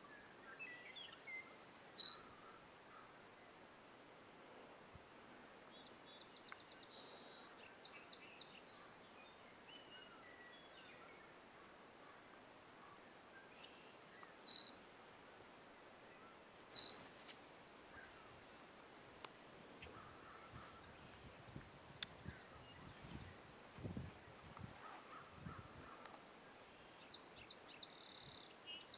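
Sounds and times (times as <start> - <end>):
songbirds chirping and trilling: 0.0 - 28.9.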